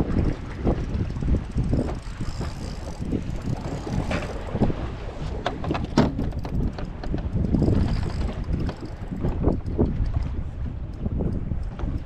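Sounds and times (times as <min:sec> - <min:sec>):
wind buffeting microphone: 0:00.0 - 0:12.0
knocks and crackles: 0:00.7 - 0:04.7, 0:05.4 - 0:10.4.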